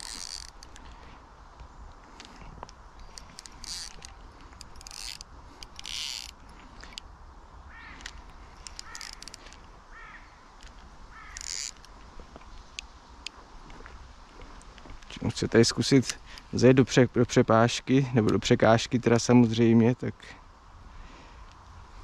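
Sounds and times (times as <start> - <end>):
fishing reel drag buzzing: 0.0 - 1.0, 3.0 - 7.0, 7.8 - 10.2, 11.1 - 11.9
reel ticking: 0.0 - 1.0, 3.0 - 7.0, 8.0 - 9.5, 11.2 - 11.9
short bird calls: 7.7 - 10.5, 11.1 - 11.7.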